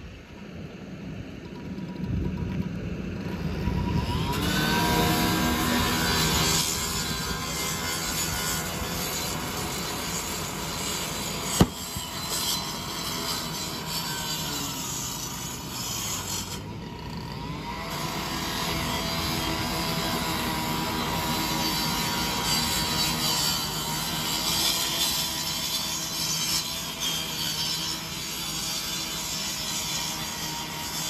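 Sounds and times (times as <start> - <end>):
sharp pop: 11.6 - 12.1.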